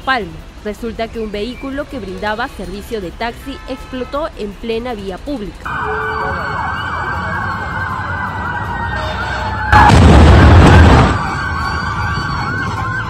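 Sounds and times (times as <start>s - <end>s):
fire engine siren yelping: 5.7s - 13.0s
explosion with deep rumble: 9.7s - 12.9s.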